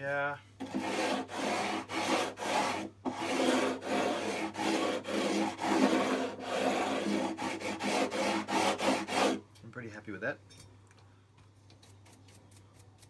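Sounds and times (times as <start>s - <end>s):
sanding block rasping on frets: 0.6s - 9.4s.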